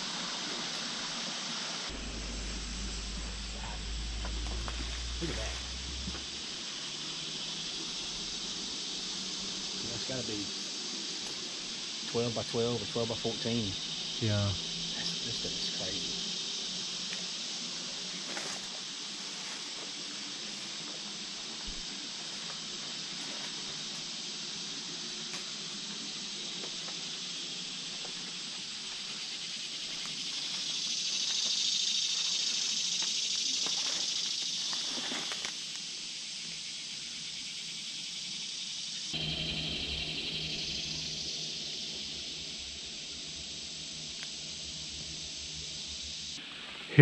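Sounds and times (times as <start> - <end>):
insects chorus hissing: 0.0 - 47.0
low rumble: 1.9 - 9.7, 39.2 - 45.9.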